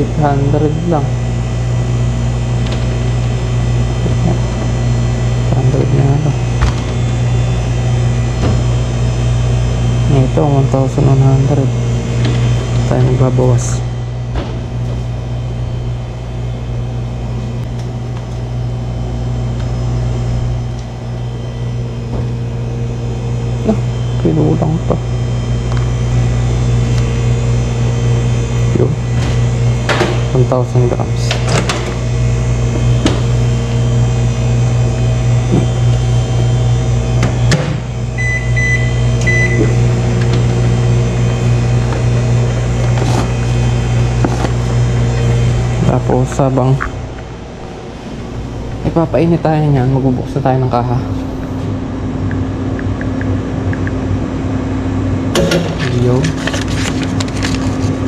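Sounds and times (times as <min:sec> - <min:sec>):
kitchen machinery humming: 0:00.0 - 0:58.0.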